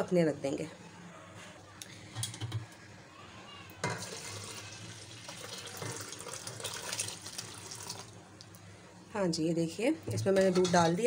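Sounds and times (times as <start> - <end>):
milk pouring into a pot: 4.0 - 8.2.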